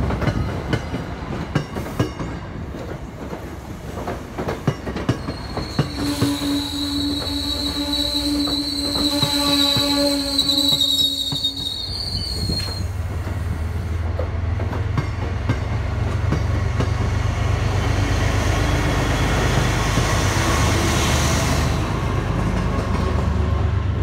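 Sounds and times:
high wheel squeal: 0:05.2 - 0:13.0.

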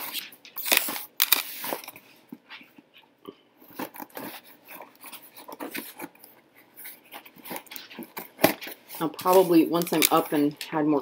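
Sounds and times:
packing tape ripping: 0:00.0 - 0:01.9
cardboard rustling and scraping: 0:00.0 - 0:03.0, 0:03.6 - 0:10.6.

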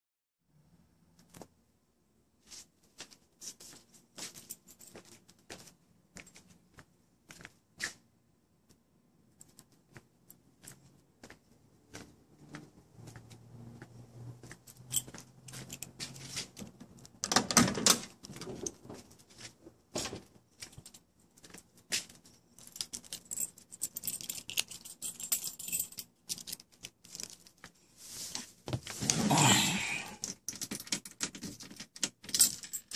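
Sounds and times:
keys jangling: 0:14.4 - 0:16.6, 0:20.6 - 0:27.5, 0:30.2 - 0:32.9.

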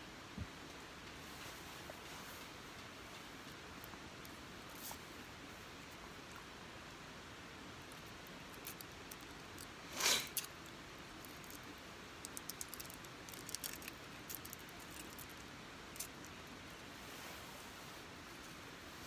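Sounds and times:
wrapper crinkling: 0:11.2 - 0:16.4.

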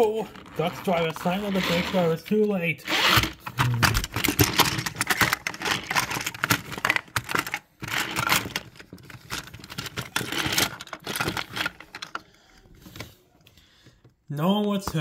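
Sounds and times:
plastic toy trains clattering: 0:03.2 - 0:12.3.

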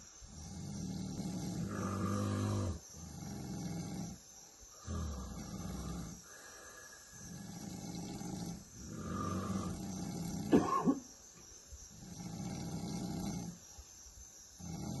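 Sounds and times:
person snoring: 0:04.8 - 0:10.6, 0:12.0 - 0:13.6, 0:14.6 - 0:15.0.

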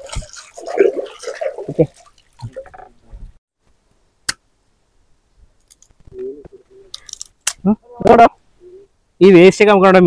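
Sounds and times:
water splashing and dripping: 0:00.0 - 0:03.4.

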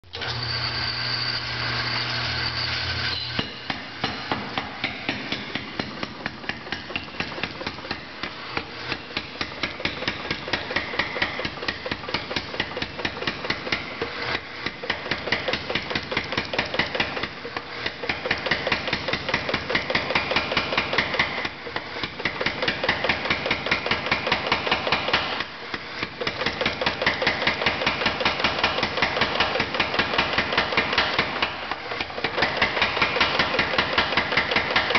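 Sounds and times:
machine humming: 0:00.1 - 0:18.2
power hammer striking hot iron: 0:03.1 - 0:34.9.

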